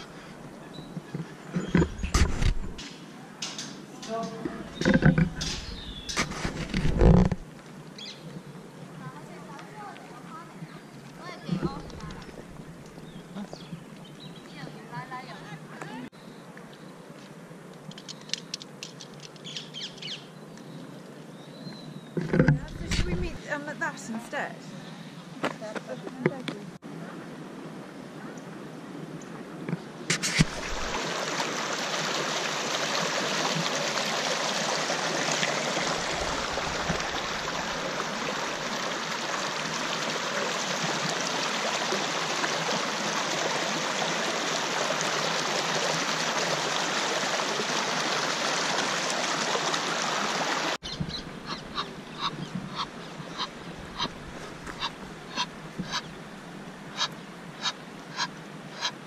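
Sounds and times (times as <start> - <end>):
water rushing down stone channel: 30.1 - 52.8
geese calling: 50.8 - 56.2, 56.9 - 59.0.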